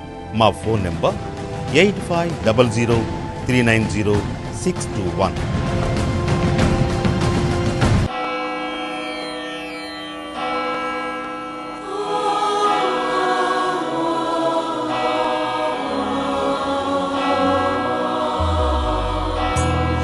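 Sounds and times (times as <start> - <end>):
instrumental accompaniment: 0.0 - 12.4, 16.5 - 20.0
choir singing: 11.5 - 20.0
deep bass: 18.4 - 20.0.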